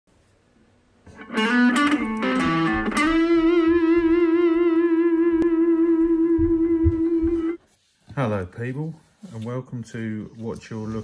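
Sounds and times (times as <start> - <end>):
electric guitar music: 1.1 - 7.6.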